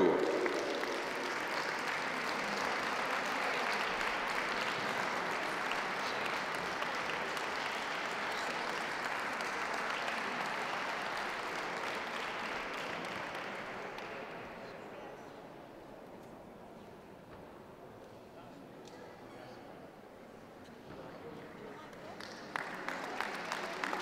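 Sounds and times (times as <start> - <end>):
audience applauding: 0.0 - 14.2, 22.2 - 24.0.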